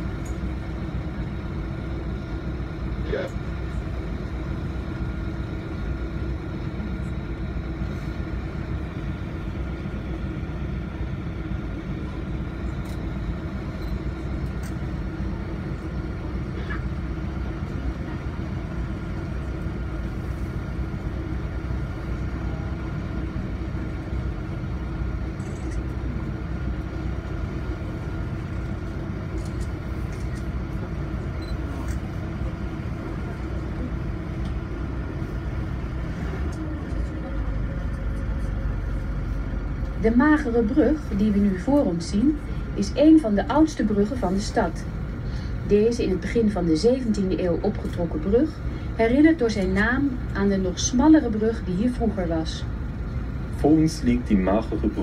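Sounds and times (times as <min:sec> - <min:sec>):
boat motor droning: 0:00.0 - 0:55.0.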